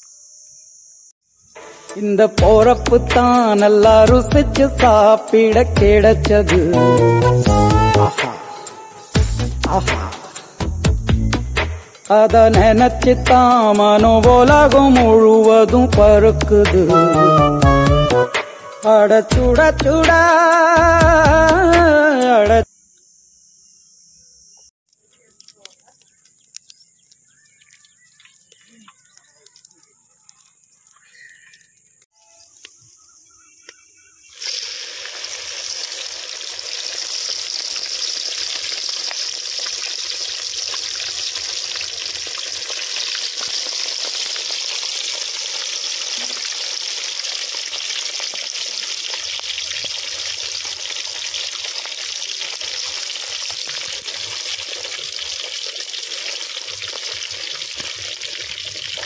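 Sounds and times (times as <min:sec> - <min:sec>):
fish deep-frying in hot oil: 0:25.4 - 0:32.7, 0:34.2 - 0:59.0.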